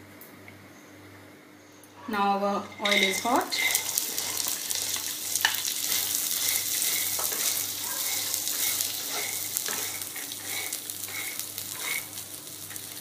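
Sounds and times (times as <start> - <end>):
spatula scraping pan: 2.6 - 12.8
beans sizzling in oil: 2.6 - 13.0.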